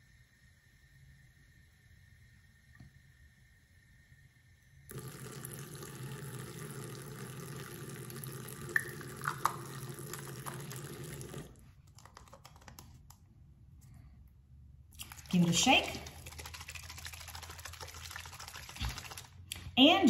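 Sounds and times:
faucet water splashing: 0:04.9 - 0:12.8, 0:14.9 - 0:19.7.

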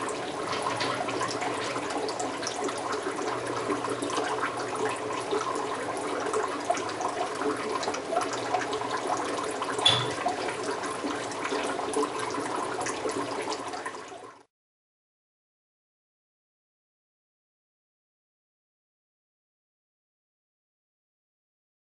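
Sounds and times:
aquarium water trickling: 0:00.0 - 0:14.5.

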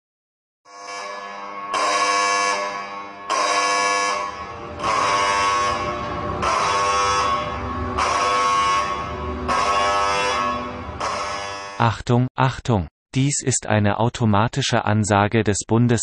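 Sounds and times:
alarm horn blasts: 0:00.7 - 0:11.8
low rumble: 0:04.2 - 0:11.0.

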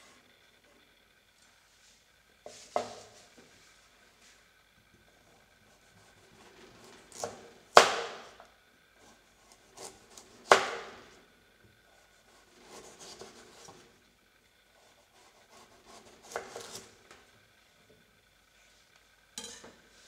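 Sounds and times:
knife slicing carrot: 0:12.4 - 0:13.8, 0:15.2 - 0:16.9.

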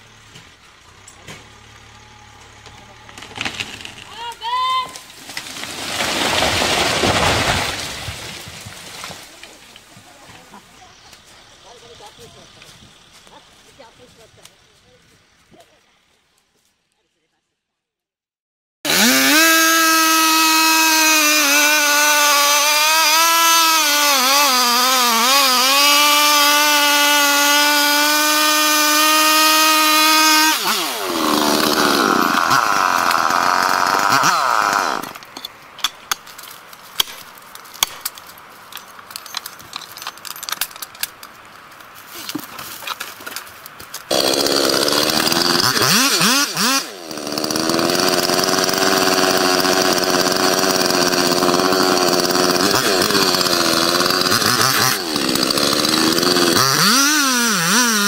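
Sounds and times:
chainsaw cutting wood: 0:02.6 - 0:04.3, 0:05.0 - 0:09.2, 0:18.9 - 0:35.4, 0:44.0 - 0:58.0.

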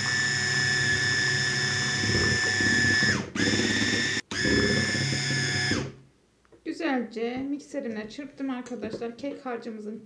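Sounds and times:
electric hand mixer running: 0:00.0 - 0:06.0.

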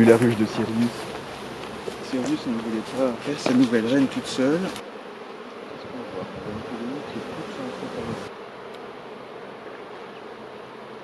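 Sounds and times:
bees buzzing: 0:00.0 - 0:11.0
single bees flying past: 0:00.0 - 0:11.0.

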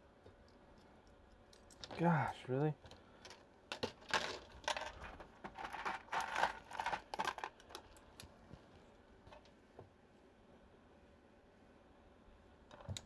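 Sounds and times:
clatter of small tools on desk: 0:02.9 - 0:08.0.

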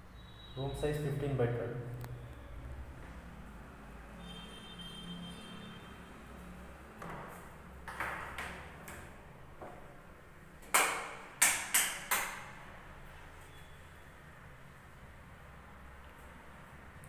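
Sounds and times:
sharp taps echoing off tiles: 0:07.0 - 0:09.8, 0:10.6 - 0:12.6.

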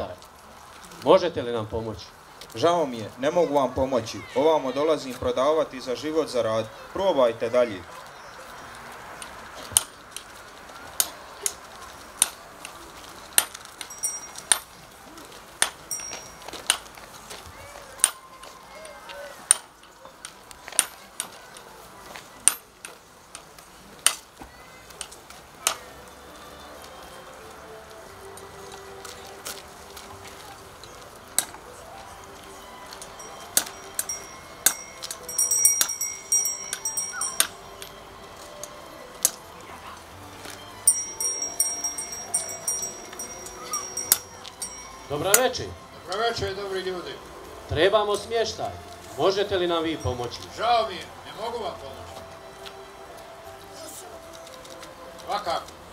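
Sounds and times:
donkey hooves clopping on asphalt: 0:07.1 - 0:25.5, 0:26.1 - 0:53.6
metal chain jingling: 0:13.4 - 0:14.8, 0:15.8 - 0:16.8, 0:33.2 - 0:38.0, 0:40.9 - 0:45.7.

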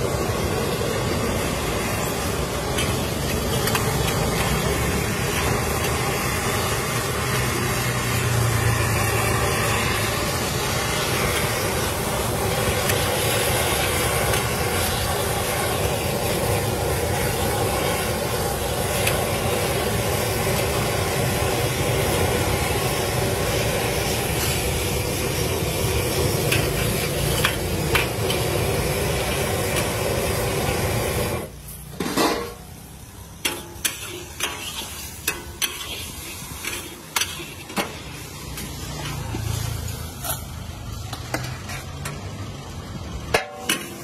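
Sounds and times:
food sizzling in wok: 0:00.0 - 0:44.0
loud burner roar: 0:00.0 - 0:44.0
utensils clinking and scraping wok: 0:00.0 - 0:44.0.

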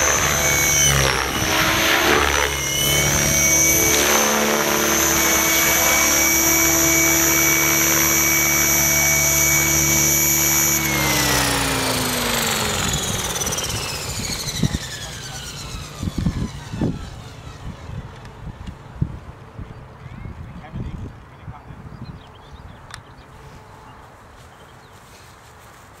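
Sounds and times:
rc helicopter motor whine: 0:00.0 - 0:19.0.

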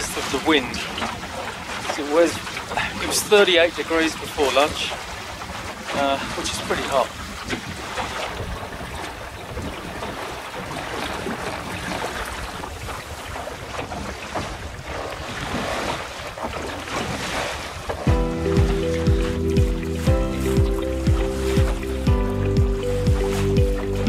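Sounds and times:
water washing along hull: 0:00.0 - 0:24.0
wind buffeting microphone: 0:07.1 - 0:24.0.

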